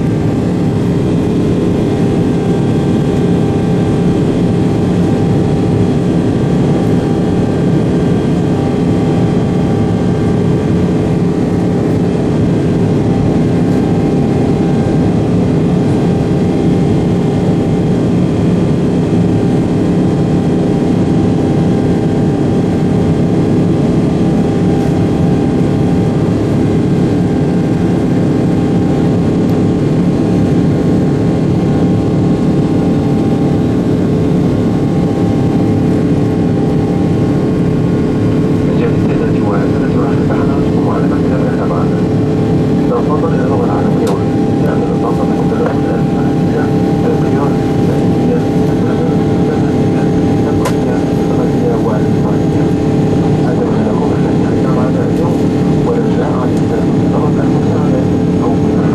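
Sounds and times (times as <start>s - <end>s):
jet engine drone in cabin: 0.0s - 58.9s.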